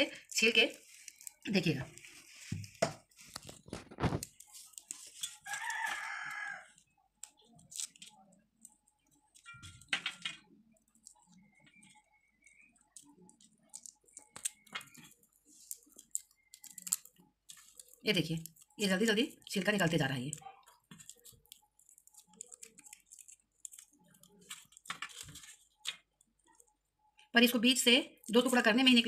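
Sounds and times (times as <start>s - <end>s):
garlic skins crackling: 0.1s - 9.5s, 10.4s - 26.7s
rooster crowing: 5.4s - 6.8s.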